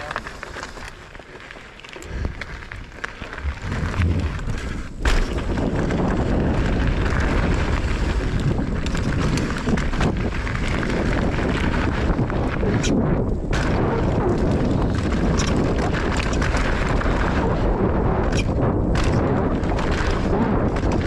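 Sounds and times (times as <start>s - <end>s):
bike tyres rolling over dirt and stones: 0.0s - 21.0s
wind rumble on microphone: 2.0s - 21.0s
small clicks and rattles: 6.8s - 13.4s, 14.4s - 17.2s.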